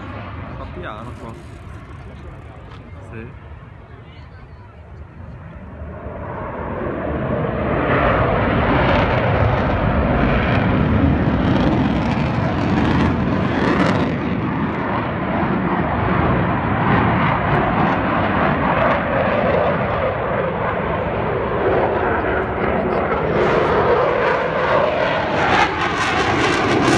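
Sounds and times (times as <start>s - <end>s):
jet engine roar: 0.0s - 26.9s.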